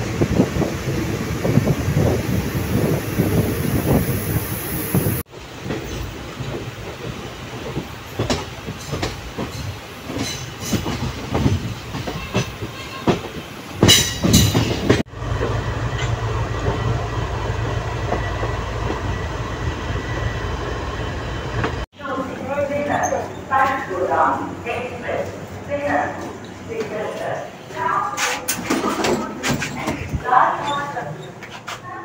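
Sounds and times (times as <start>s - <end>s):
train wheels clattering over rail joints: 5.5s - 16.8s.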